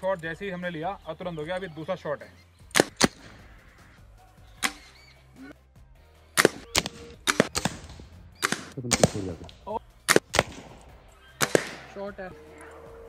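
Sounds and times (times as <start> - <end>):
air rifle shots: 2.7 - 3.5, 4.6 - 4.9, 6.4 - 12.0.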